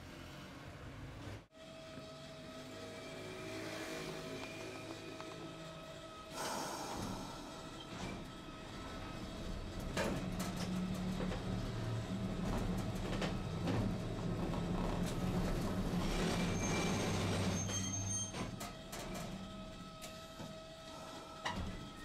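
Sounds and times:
streetcar running hum: 0:00.0 - 0:22.0
hiss: 0:06.3 - 0:07.7.

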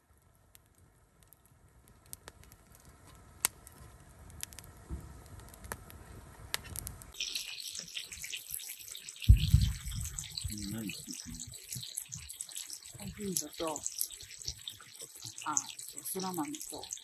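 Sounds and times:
campfire crackling: 0:00.0 - 0:17.0
sharp pops: 0:04.3 - 0:16.9.

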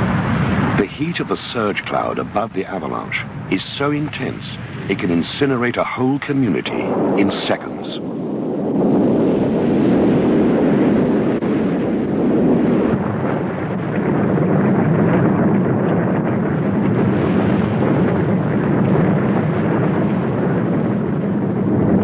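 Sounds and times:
loud low rumble: 0:00.0 - 0:22.0.

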